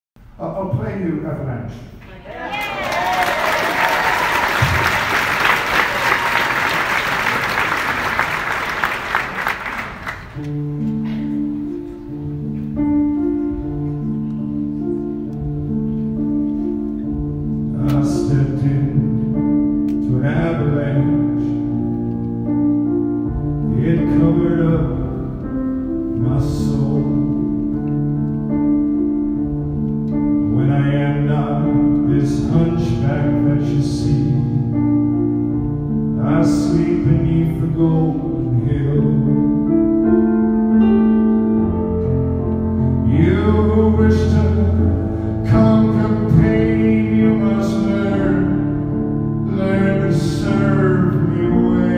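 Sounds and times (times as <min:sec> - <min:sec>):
slow piano chords: 0:03.2 - 0:51.9
man singing: 0:17.6 - 0:21.8, 0:23.6 - 0:27.8, 0:30.4 - 0:34.9, 0:35.9 - 0:40.2, 0:43.0 - 0:51.9.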